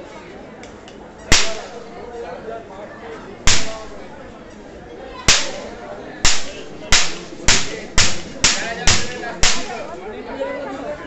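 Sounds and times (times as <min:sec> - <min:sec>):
crowd murmur: 0:00.0 - 0:11.0
loud sharp cracks: 0:01.3 - 0:01.9, 0:03.5 - 0:04.3, 0:05.3 - 0:09.9.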